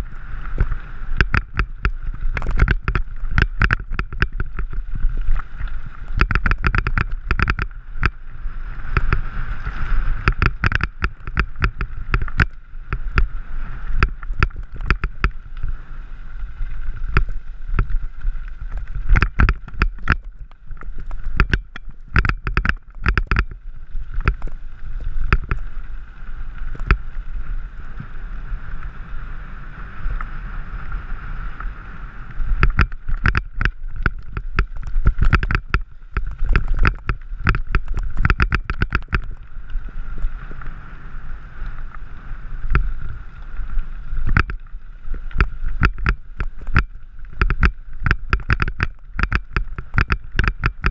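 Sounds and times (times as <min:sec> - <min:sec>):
tyres crunching on loose stones: 0:00.0 - 0:08.2, 0:08.9 - 0:27.4, 0:32.5 - 0:40.6
bike clattering over bumps: 0:01.2 - 0:04.8, 0:06.2 - 0:08.2, 0:10.2 - 0:13.3, 0:21.3 - 0:23.6, 0:32.6 - 0:39.4, 0:45.3 - 0:50.9.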